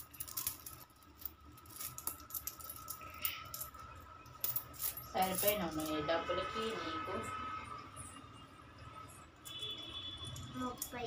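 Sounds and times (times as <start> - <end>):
coins clinking: 0.0 - 6.0.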